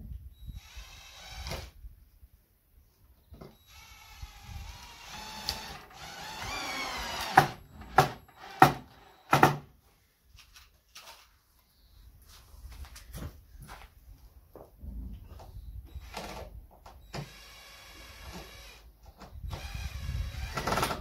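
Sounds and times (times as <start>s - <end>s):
cordless drill driving screw: 0.6s - 1.8s, 3.7s - 9.3s, 17.1s - 18.8s, 19.5s - 21.0s.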